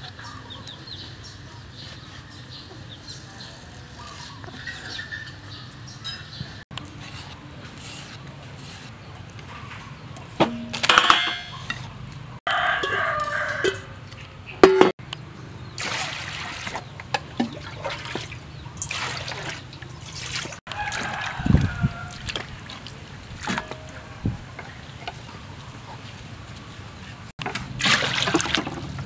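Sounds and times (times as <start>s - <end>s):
water splashing into steel bowl: 15.8s - 24.0s, 27.4s - 29.0s.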